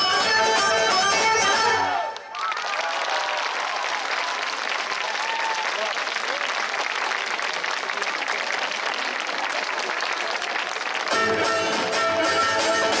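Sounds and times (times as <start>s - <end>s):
folk dance music: 0.0s - 2.3s, 4.4s - 13.0s
audience applauding: 2.1s - 12.0s.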